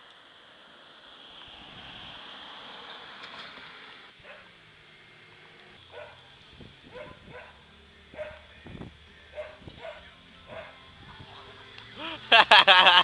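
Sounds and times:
passing car tyre noise: 0.0 - 12.8
dog barking: 4.2 - 4.5, 5.9 - 6.2, 6.9 - 7.6, 8.2 - 8.4, 9.4 - 10.8.

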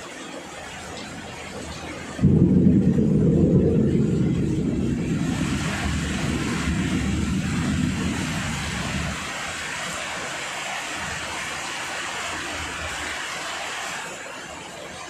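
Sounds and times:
steady rain: 0.0 - 15.0
thunder rumble: 1.1 - 9.8.

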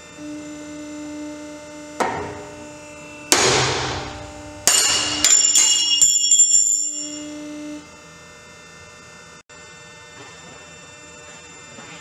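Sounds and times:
test rig hum: 0.1 - 8.1
metallic knocks with ringing: 4.6 - 7.2.

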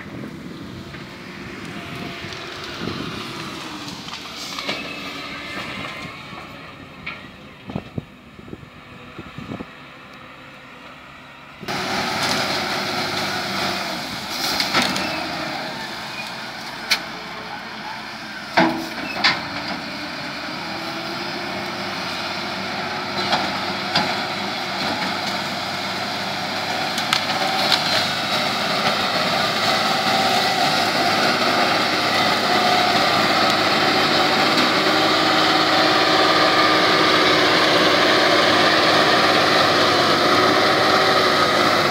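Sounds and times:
diesel engine under load: 0.0 - 41.9
branches snapping and cracking: 26.9 - 28.2.

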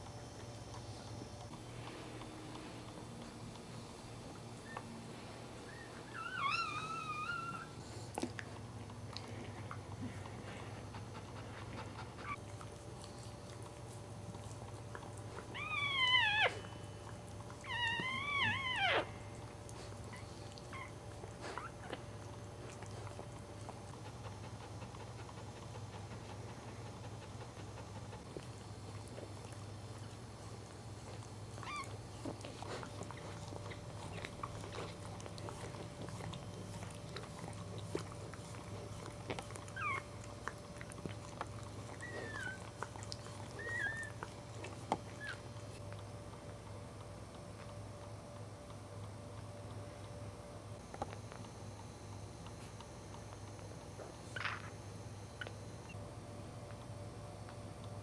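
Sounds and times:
puppy crying: 5.7 - 7.8, 15.5 - 17.0, 17.6 - 19.4, 31.6 - 32.4, 39.4 - 40.3, 41.9 - 44.4, 45.1 - 45.5.

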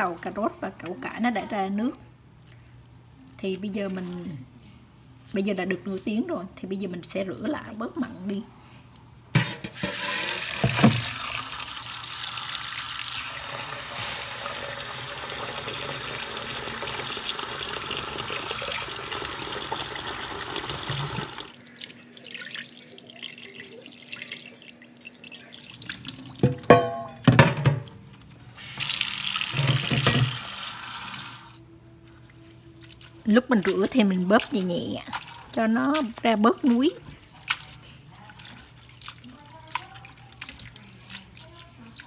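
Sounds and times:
tap running into a steel bowl: 9.4 - 11.2, 26.4 - 27.9, 29.5 - 30.4
bowl and basket knocking: 26.4 - 27.9
water splashing: 32.0 - 42.0.

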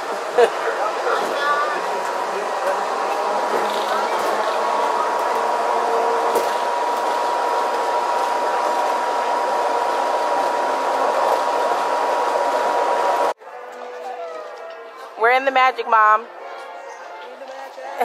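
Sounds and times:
high whine: 0.0 - 13.4
monorail cabin rushing noise: 0.0 - 13.4.

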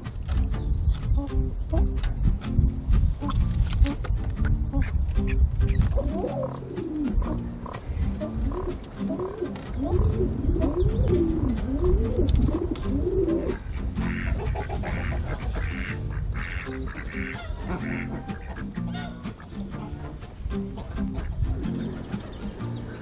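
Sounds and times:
background music: 0.0 - 23.0
pigeons cooing: 3.2 - 23.0
ducks quacking: 4.6 - 23.0.

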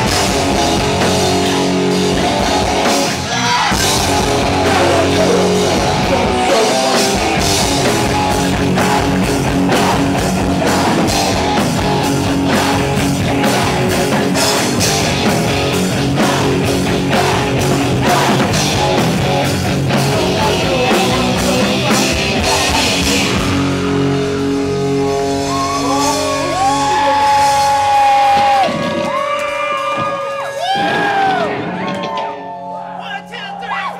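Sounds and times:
bass guitar: 0.0 - 33.0
distorted electric guitar: 0.0 - 33.0
drums: 0.0 - 33.9
person yelling vocals: 4.6 - 7.1.

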